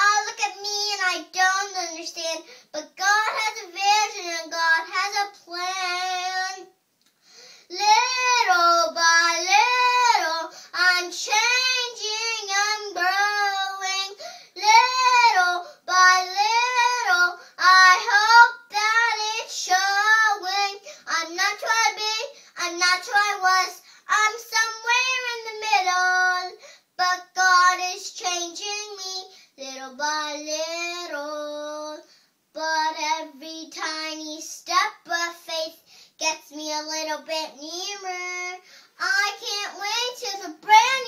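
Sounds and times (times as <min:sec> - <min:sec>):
girl singing unaccompanied: 0:00.0 - 0:41.0.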